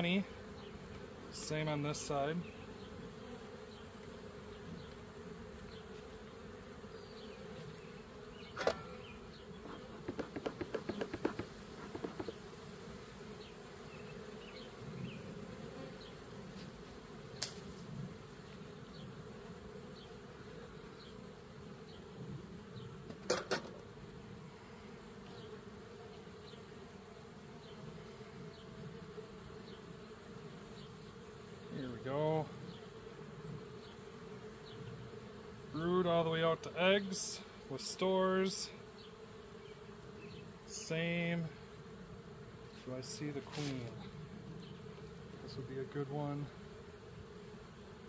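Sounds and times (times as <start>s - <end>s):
honeybees buzzing: 0.0s - 48.0s
sharp knocks: 9.9s - 12.4s.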